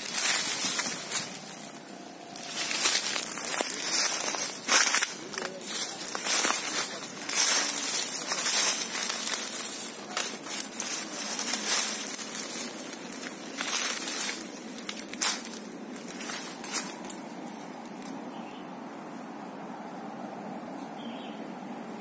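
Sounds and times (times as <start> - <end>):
footsteps crunching through dry leaves: 0.0 - 18.2
steady low hiss: 0.0 - 22.0.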